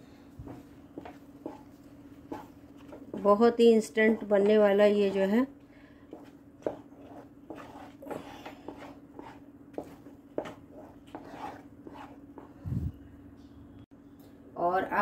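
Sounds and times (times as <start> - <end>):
steady low hum: 0.0 - 14.6
spatula scraping metal pan: 6.6 - 12.5.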